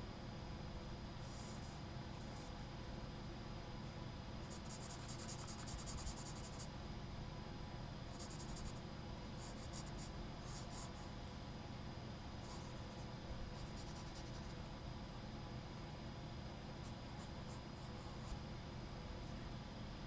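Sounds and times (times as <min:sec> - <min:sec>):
pencil scratching on paper: 0:04.5 - 0:06.7, 0:08.2 - 0:08.8.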